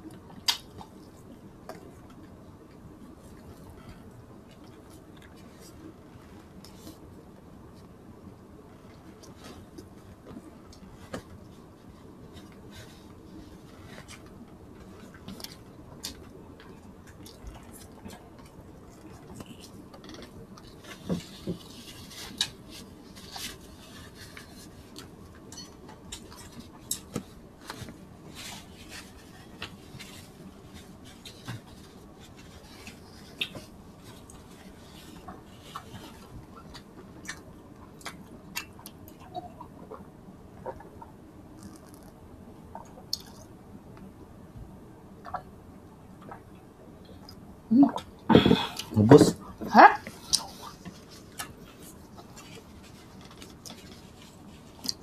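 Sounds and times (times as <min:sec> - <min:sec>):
faint steady background hum: 0:00.0 - 0:55.0
mouth smacks and clicks from chewing: 0:42.8 - 0:43.5.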